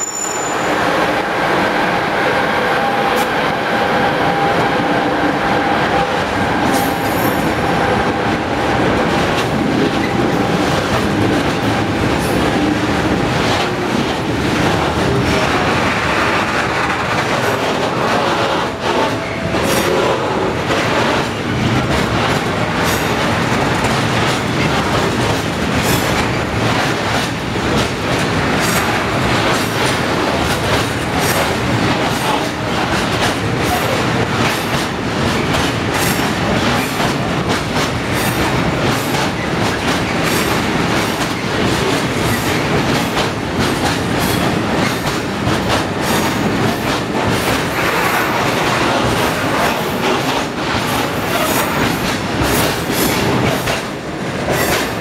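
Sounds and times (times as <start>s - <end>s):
wheels clickety-clack on rail joints: 0.0s - 55.0s
wheels rumbling on rails: 0.0s - 55.0s.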